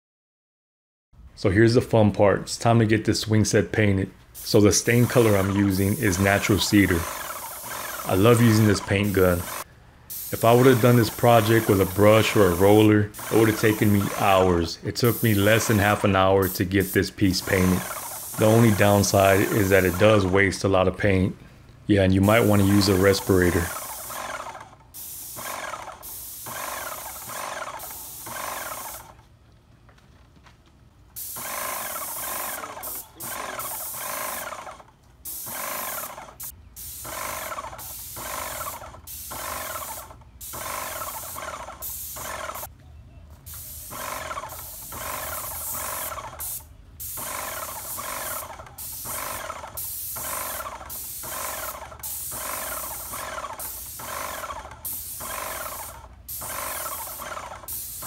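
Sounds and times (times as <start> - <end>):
paint sprayer hissing: 4.2 - 20.6, 22.1 - 29.2, 31.2 - 42.7, 43.5 - 58.0
buzzing pump: 4.5 - 14.5, 17.4 - 20.3, 22.3 - 29.2, 31.2 - 42.7, 43.6 - 58.0.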